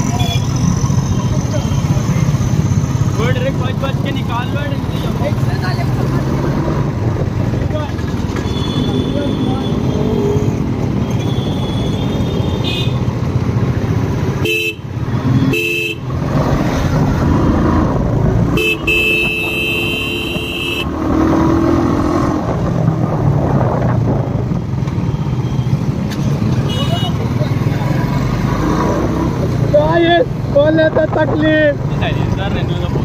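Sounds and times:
vehicle horns honking: 0:08.4 - 0:09.9, 0:11.0 - 0:13.1, 0:14.4 - 0:16.1, 0:18.5 - 0:21.0, 0:26.6 - 0:27.3.

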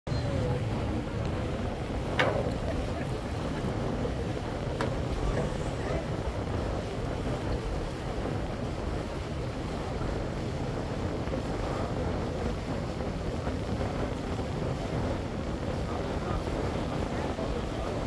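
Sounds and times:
boat engine rumble: 0:00.1 - 0:18.0
water wash: 0:00.1 - 0:18.0
wind buffeting microphone: 0:00.1 - 0:18.0.

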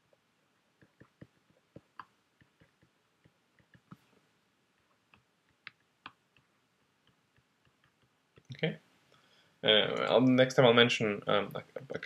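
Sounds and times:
stylus tapping on tablet screen: 0:00.8 - 0:04.1, 0:05.0 - 0:08.5.

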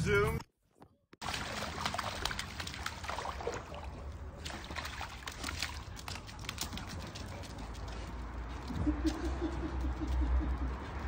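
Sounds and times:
puppy paws splashing in water: 0:01.2 - 0:10.8.

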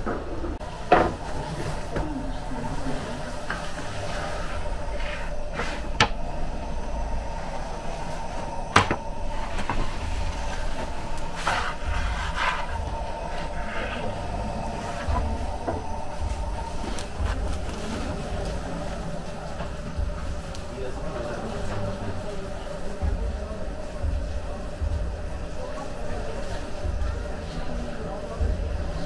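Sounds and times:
steady low rumble: 0:00.3 - 0:29.0.

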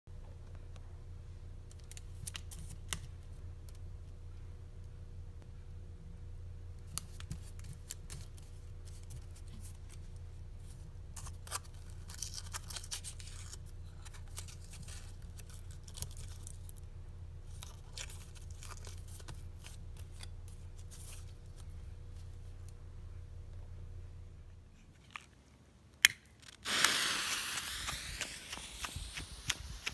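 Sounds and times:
low hum: 0:08.6 - 0:25.2, 0:26.7 - 0:29.9
aluminium foil crinkling: 0:11.2 - 0:16.8, 0:17.5 - 0:21.7.

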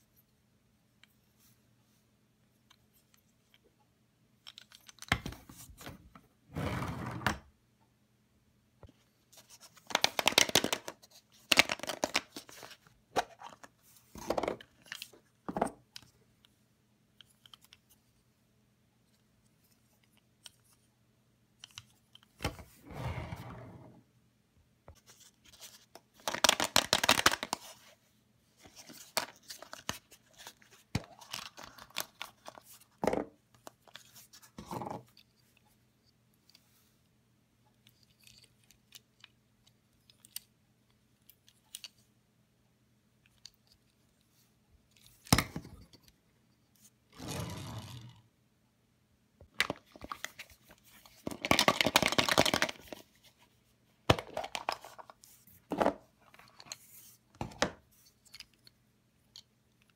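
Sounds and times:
rustling and scraping of toys: 0:04.4 - 0:07.4, 0:08.9 - 0:16.2, 0:21.6 - 0:24.0, 0:24.9 - 0:26.2, 0:27.2 - 0:37.1, 0:43.3 - 0:48.2, 0:49.6 - 0:58.8.

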